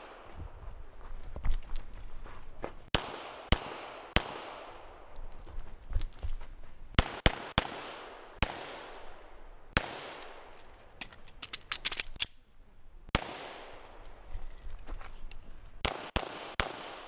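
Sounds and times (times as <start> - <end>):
pistol shots: 2.9 - 4.9, 7.0 - 9.2, 9.8 - 10.5, 13.1 - 14.0, 15.8 - 17.0.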